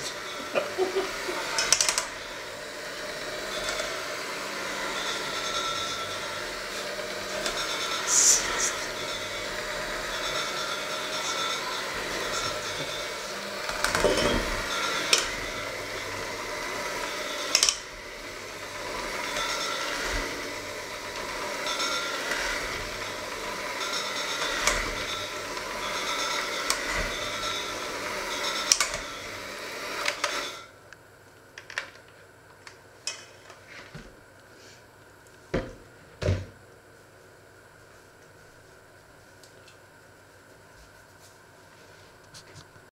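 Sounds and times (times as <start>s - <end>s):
hand mixer motor running: 0.0s - 30.8s.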